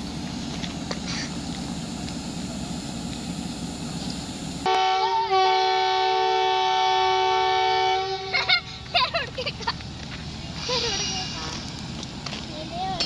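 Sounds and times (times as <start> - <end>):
train horn two-note chord: 4.7 - 8.3.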